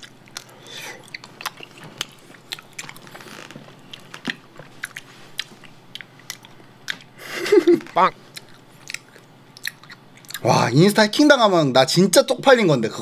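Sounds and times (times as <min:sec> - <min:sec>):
chewing honeycomb: 0:00.0 - 0:07.2, 0:07.8 - 0:10.6.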